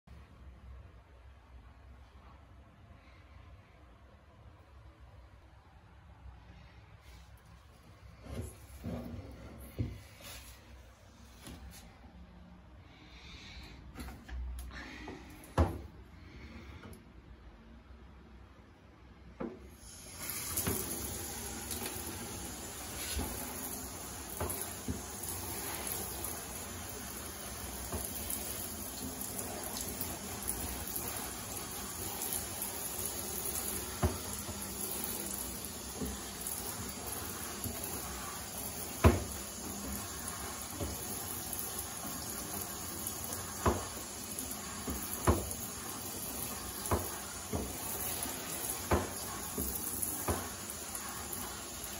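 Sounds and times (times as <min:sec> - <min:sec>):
shower head spraying water: 0:19.7 - 0:51.9.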